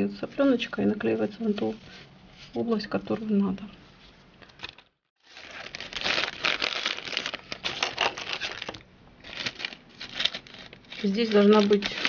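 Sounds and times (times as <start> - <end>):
plastic packaging crinkling: 4.6 - 12.0.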